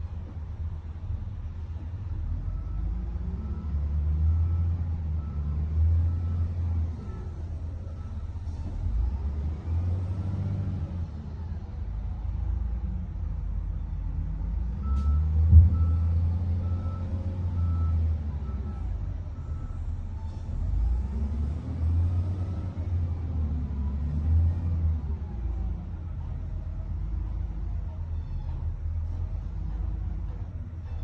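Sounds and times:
diesel engine running: 0:00.0 - 0:31.0.

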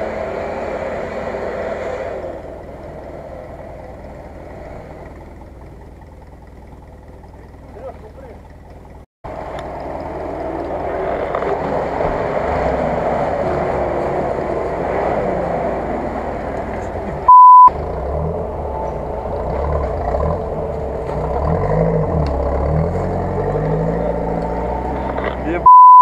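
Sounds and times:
suv engine running under load: 0:00.0 - 0:26.0
censor bleep: 0:17.3 - 0:17.7, 0:25.6 - 0:26.0.

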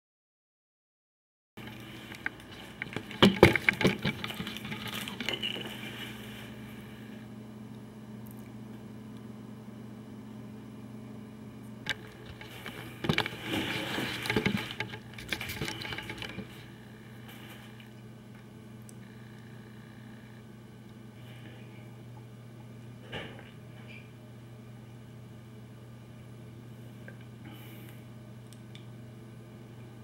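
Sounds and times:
camera handling rustles and knocks: 0:01.6 - 0:05.8, 0:11.9 - 0:16.6
low electrical hum: 0:01.6 - 0:30.0.

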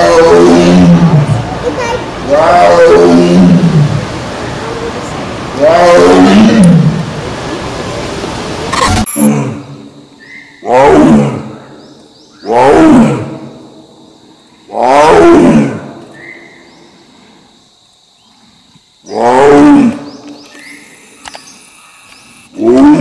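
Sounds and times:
tiger roaring: 0:00.0 - 0:01.4, 0:02.3 - 0:04.0, 0:05.6 - 0:07.1, 0:08.7 - 0:09.9, 0:10.6 - 0:11.7, 0:12.4 - 0:13.6, 0:14.7 - 0:16.1, 0:19.0 - 0:20.1, 0:22.5 - 0:23.0.

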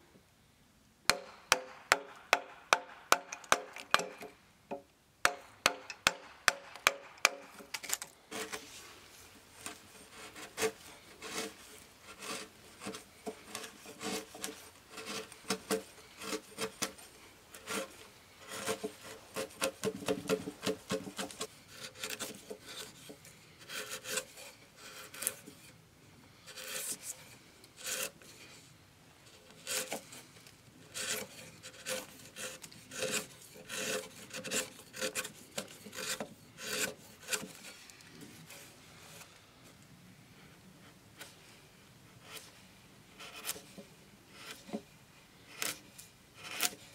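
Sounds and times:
chisel scraping wood: 0:05.3 - 0:25.8, 0:26.4 - 0:28.6, 0:29.5 - 0:39.3, 0:42.2 - 0:44.9, 0:45.5 - 0:46.9.

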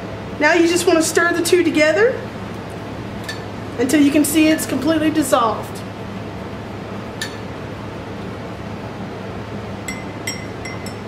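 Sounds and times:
steady low hum: 0:00.0 - 0:11.0
metal spoon clinking on glass: 0:09.9 - 0:11.0.

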